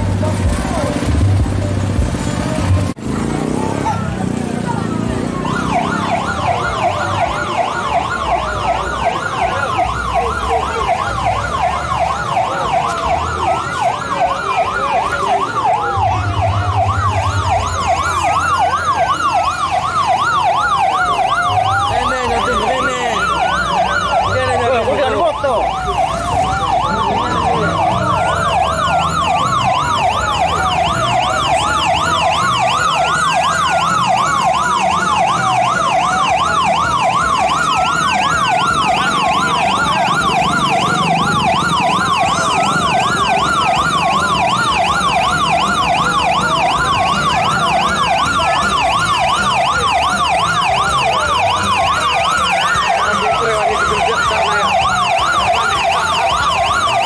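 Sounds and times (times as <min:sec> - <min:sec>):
electronic sirens yelping: 0:02.8 - 0:57.0
electronic siren wailing: 0:03.4 - 0:57.0.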